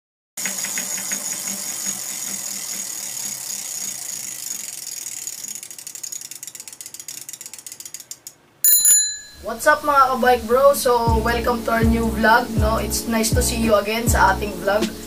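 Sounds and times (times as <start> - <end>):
bicycle freewheel ratchet clicking: 0.4 - 9.1.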